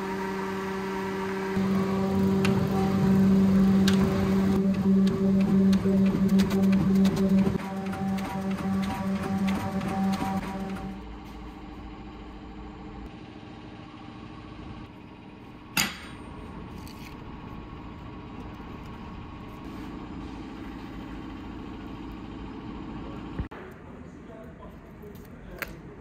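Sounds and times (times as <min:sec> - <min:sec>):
workshop machine hum: 0:00.0 - 0:24.0.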